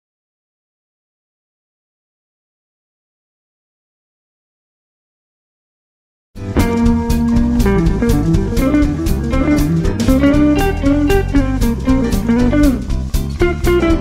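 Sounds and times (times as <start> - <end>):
backing track with beat and bass: 6.4 - 14.0
electric guitar solo: 6.6 - 14.0.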